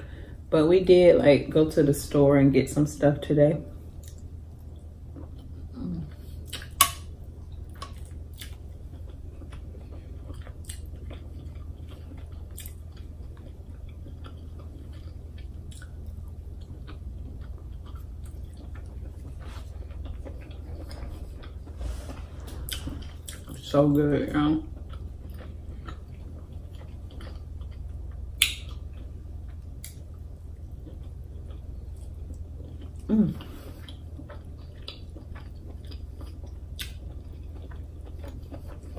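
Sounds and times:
person chewing: 4.0 - 24.0, 24.6 - 38.9
wet mouth clicks and smacks: 28.4 - 28.8.

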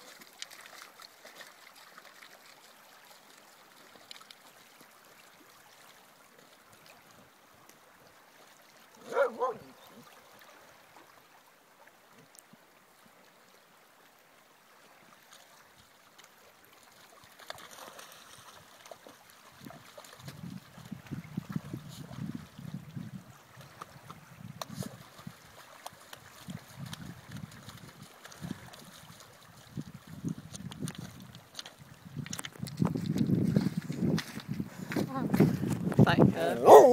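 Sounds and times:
small waves lapping on pebbles: 0.0 - 36.9
dog barking: 9.0 - 9.8, 36.6 - 36.9.

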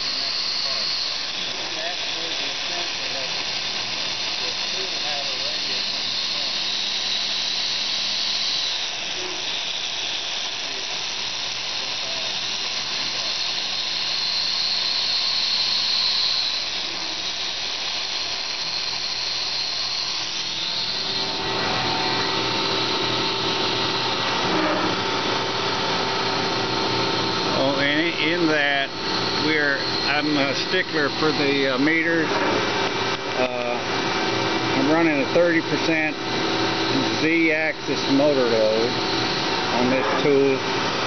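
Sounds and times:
milling machine cutting steel: 0.0 - 41.0
steady motor whine: 0.0 - 41.0.

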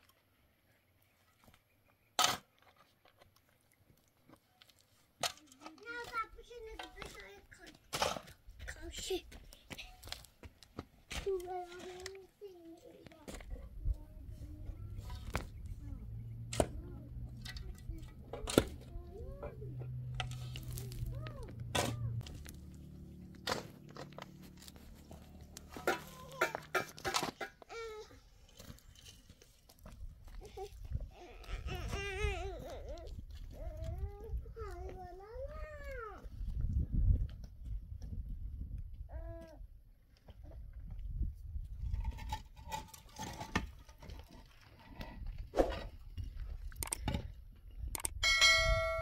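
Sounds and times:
shovel scraping stony earth: 7.9 - 8.8, 20.1 - 30.0, 41.8 - 46.2
shovel blade knocking ground: 23.3 - 27.7.

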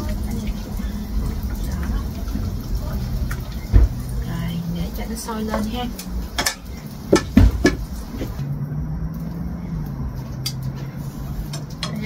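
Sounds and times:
utensils clinking against dishes: 11.5 - 12.0.

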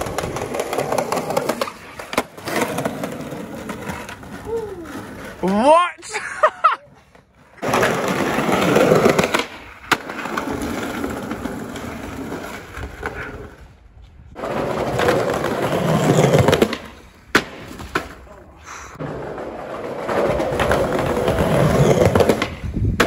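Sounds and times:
skateboard clacking on ground: 0.0 - 5.8, 7.4 - 13.6, 14.4 - 23.0
skateboard wheels rolling on paving: 0.0 - 23.0.

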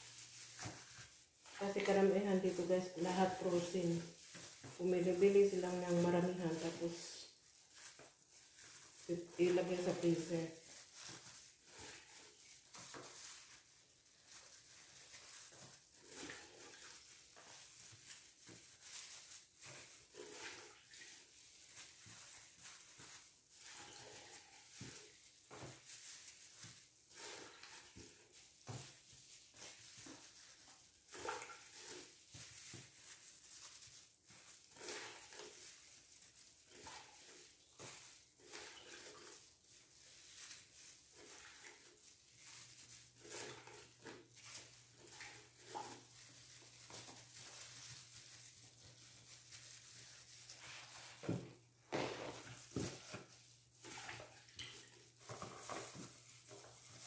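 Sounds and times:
plastic gloves rustling: 0.0 - 57.0.

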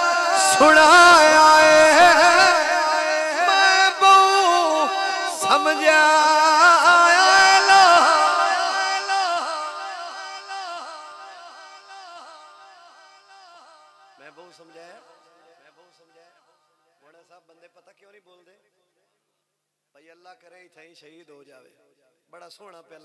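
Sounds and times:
man singing devotional melody: 0.0 - 16.3.

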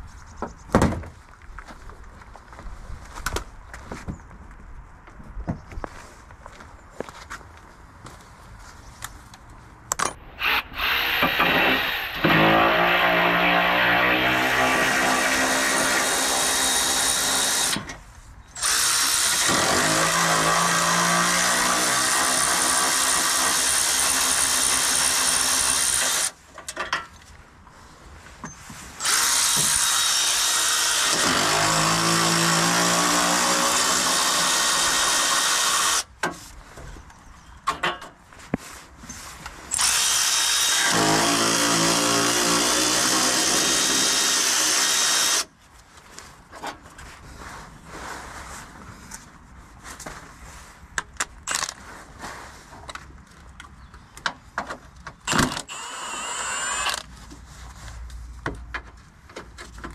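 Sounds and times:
cordless power tool bursts: 10.4 - 18.0, 39.7 - 45.5, 55.3 - 57.1.

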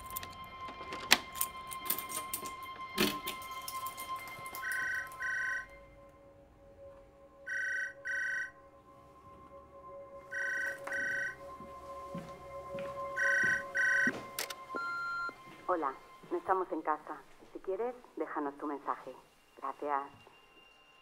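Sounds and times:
telephone ringing: 4.5 - 5.7, 7.4 - 8.6, 10.3 - 11.4, 13.1 - 15.4.

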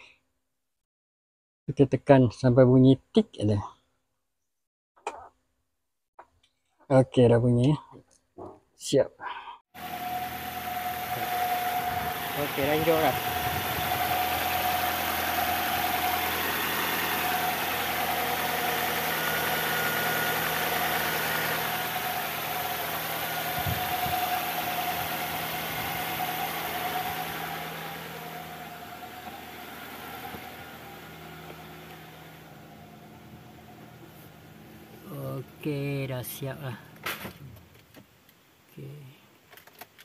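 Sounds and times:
car engine idling: 9.8 - 37.2.

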